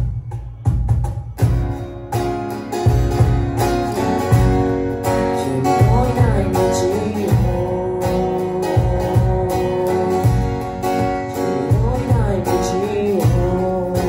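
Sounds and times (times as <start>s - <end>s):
acoustic guitar strumming: 0.0s - 14.0s
cajon beat: 0.0s - 14.0s
person singing: 5.1s - 14.0s.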